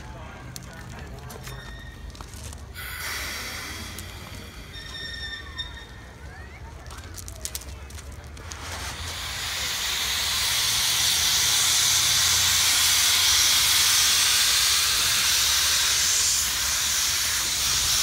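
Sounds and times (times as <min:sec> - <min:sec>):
steam locomotive hissing steam: 0:02.7 - 0:06.4, 0:08.4 - 0:18.0.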